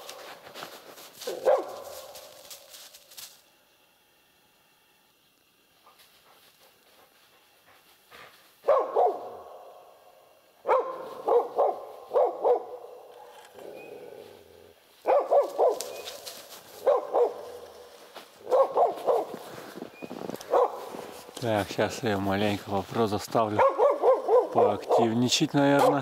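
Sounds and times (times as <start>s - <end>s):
dog baying bark: 1.2s - 2.4s, 8.6s - 10.0s, 10.6s - 14.4s, 15.0s - 16.1s, 16.7s - 19.4s, 20.4s - 21.1s, 23.6s - 25.2s.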